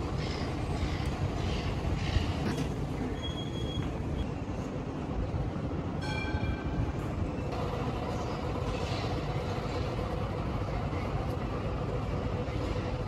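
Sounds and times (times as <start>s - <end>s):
low rumble of traffic: 0.0s - 13.0s.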